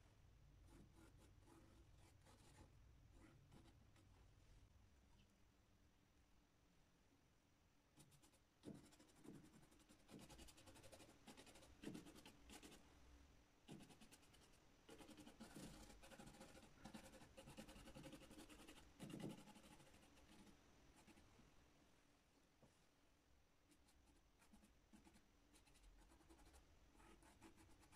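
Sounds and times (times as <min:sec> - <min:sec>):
paintbrush scratching on board: 0:08.0 - 0:12.8, 0:13.7 - 0:21.3, 0:23.7 - 0:27.9.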